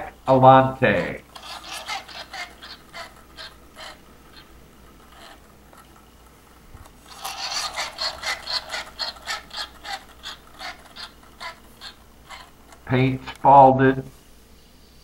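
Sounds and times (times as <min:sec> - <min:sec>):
turntable scraping squeak: 0:00.9 - 0:13.5.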